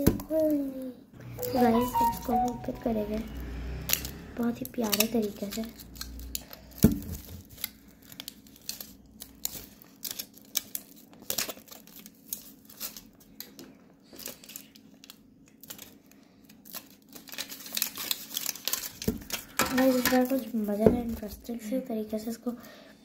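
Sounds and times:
foil wrapper crinkling and tearing: 4.7 - 20.8.

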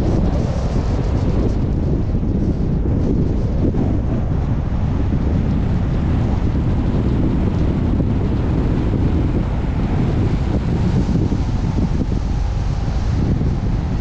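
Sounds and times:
car low rumble: 0.0 - 14.0
wind noise on microphone: 0.0 - 14.0.

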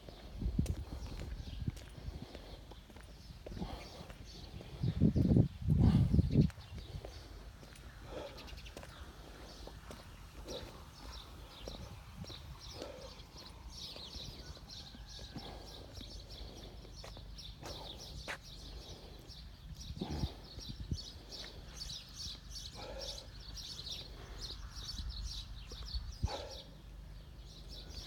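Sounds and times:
footsteps on paving: 0.0 - 5.4, 6.4 - 20.2
small birds chirping: 0.0 - 28.0.

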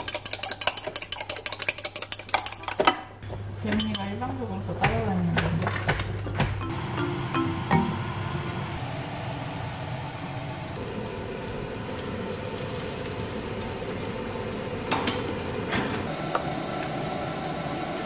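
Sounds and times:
food sizzling on stove: 6.7 - 18.0.

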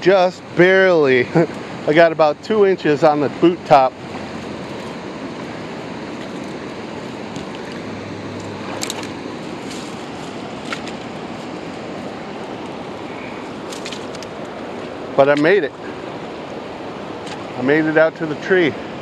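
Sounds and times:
fast-flowing river rushing: 0.0 - 19.0.

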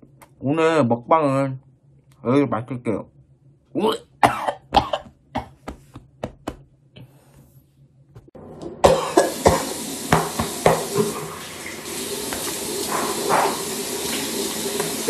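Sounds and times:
tap running into sink: 9.2 - 15.0.

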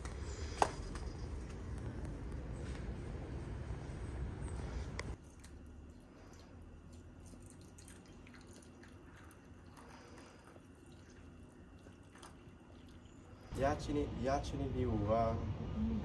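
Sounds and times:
water pouring into a mug: 5.3 - 13.5.

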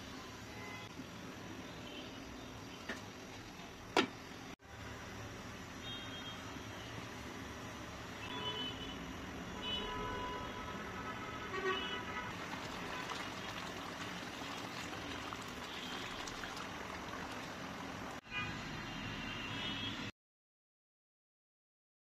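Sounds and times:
spatula stirring: 12.3 - 18.1
curry bubbling in a frying pan: 12.3 - 18.2.

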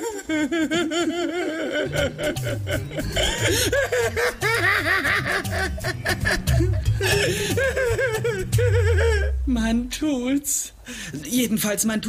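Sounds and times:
men laughing: 0.0 - 9.4
music bass line: 1.9 - 10.3.

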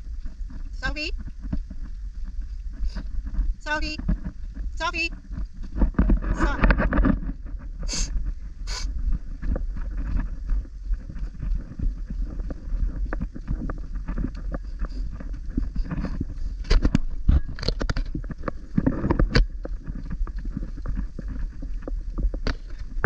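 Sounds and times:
footsteps on dirt and stone trail: 0.0 - 23.0
wind buffeting microphone: 0.0 - 23.0.

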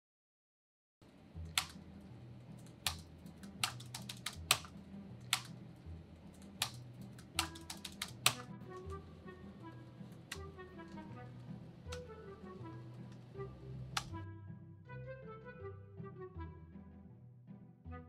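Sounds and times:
laptop keyboard key clicks: 1.5 - 1.8, 2.6 - 5.6, 6.4 - 8.4
musical tones: 7.2 - 16.7.

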